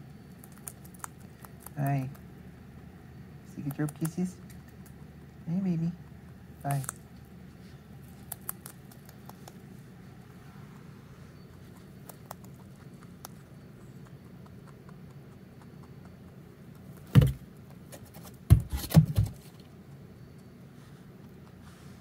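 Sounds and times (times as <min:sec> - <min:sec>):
ball toy bumping and rustling: 0:17.0 - 0:19.6
bumps and scrapes: 0:17.1 - 0:19.6.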